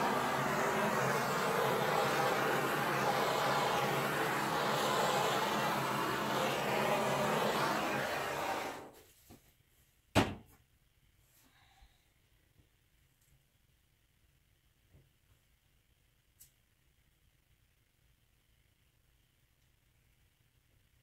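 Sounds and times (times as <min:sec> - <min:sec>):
gas torch flame hissing: 0:00.0 - 0:08.9.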